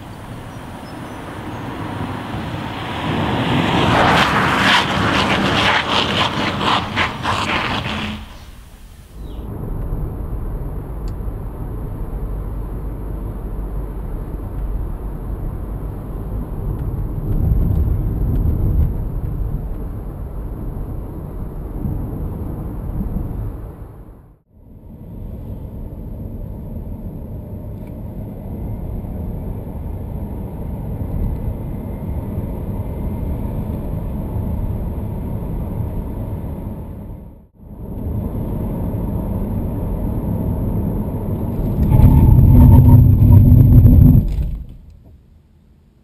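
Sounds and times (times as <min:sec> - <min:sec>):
car braking hard: 0:00.0 - 0:09.2
road and tyre rumble: 0:00.0 - 0:45.9
loud low rumble: 0:09.2 - 0:25.6, 0:39.2 - 0:44.9.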